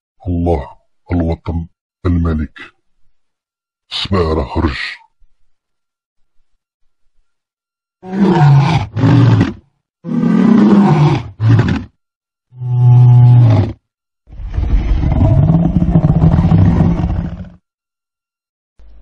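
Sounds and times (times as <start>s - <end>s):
lion roaring: 8.0s - 11.9s, 12.5s - 17.6s.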